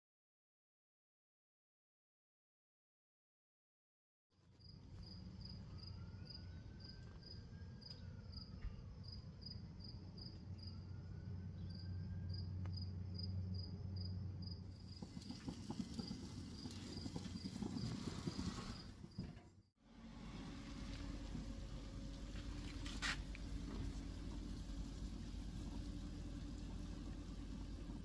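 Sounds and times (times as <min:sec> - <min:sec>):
cricket chirping: 0:04.6 - 0:19.3
steady low hum: 0:18.9 - 0:28.0.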